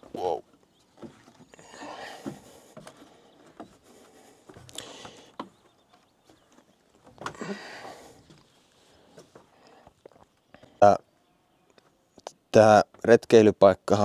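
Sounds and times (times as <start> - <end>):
footsteps on wooden stairs: 0.0 - 9.5.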